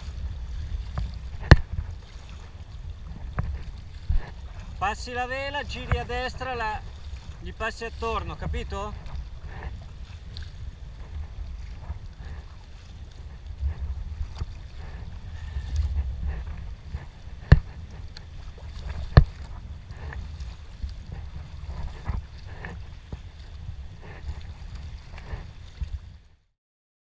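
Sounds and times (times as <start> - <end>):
water splashing against kayak hull: 0.0 - 26.4
low rumble of wind: 0.0 - 26.5
sharp knocks: 1.4 - 1.7, 17.4 - 17.7.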